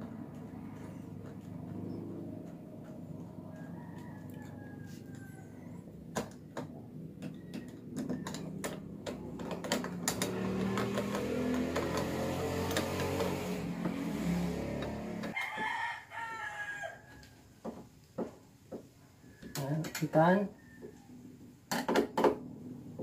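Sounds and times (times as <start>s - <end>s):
screwdriver clicking and scraping metal: 0.4s - 3.7s
rooster crowing: 3.1s - 6.0s, 14.9s - 17.6s, 19.2s - 21.2s.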